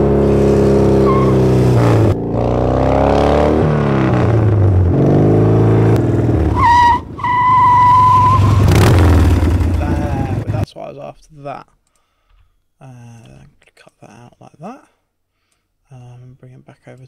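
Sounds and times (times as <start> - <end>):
motorcycle engine growling: 0.0 - 10.6.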